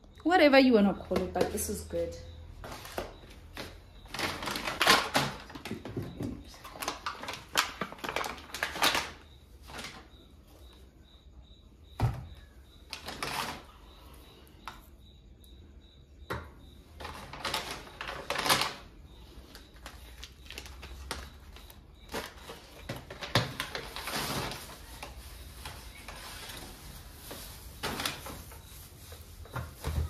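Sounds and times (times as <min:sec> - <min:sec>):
plastic bags rustling: 0:02.6 - 0:10.5, 0:12.8 - 0:13.9, 0:16.9 - 0:30.0
items knocking on countertop: 0:12.0 - 0:12.3.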